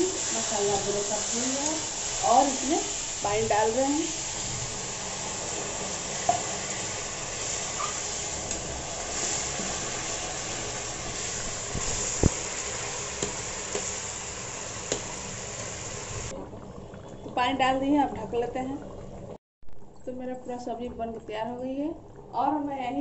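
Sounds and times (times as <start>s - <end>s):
gravy sizzling in a pan: 0.0s - 16.4s.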